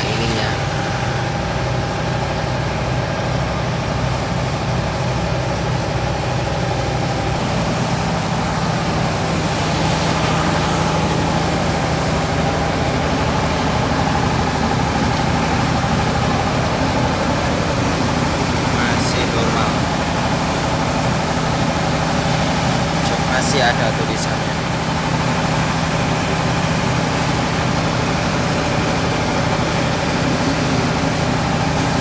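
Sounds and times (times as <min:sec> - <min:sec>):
scooter engine idling: 0:00.0 - 0:32.0.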